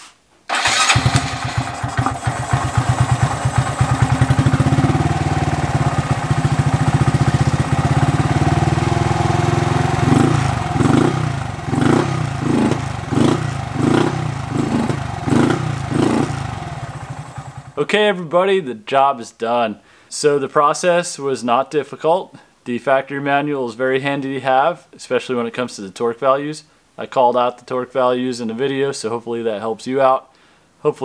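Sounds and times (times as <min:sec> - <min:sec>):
motorcycle engine idling and revving: 0:00.5 - 0:17.8.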